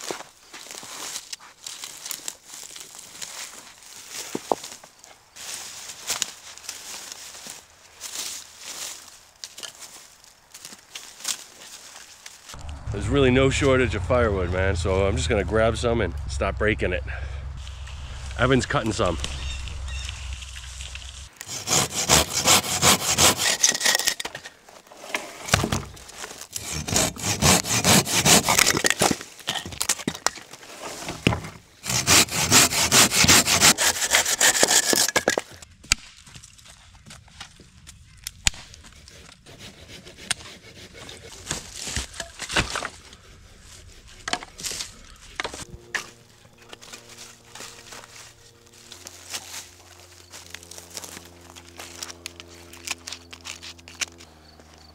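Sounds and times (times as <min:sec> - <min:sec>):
hand saw cutting wood: 0:20.8 - 0:35.6, 0:38.5 - 0:54.3.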